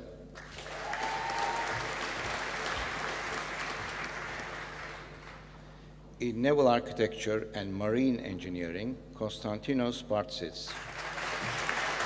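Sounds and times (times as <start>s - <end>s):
audience applauding: 0.4s - 5.4s, 10.8s - 12.0s.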